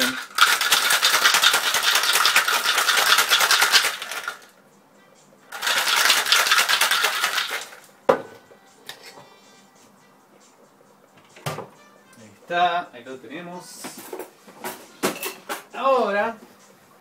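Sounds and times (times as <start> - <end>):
ice cubes rattling in shaker: 0.0 - 4.5, 5.5 - 7.9.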